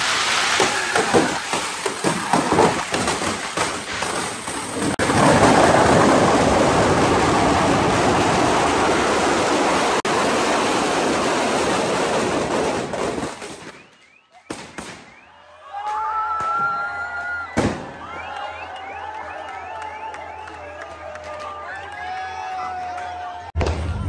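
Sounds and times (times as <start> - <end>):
fireworks crackling and hissing: 0.0 - 14.0
sharp bangs: 11.7 - 15.3
steady whistling tone: 13.6 - 15.6.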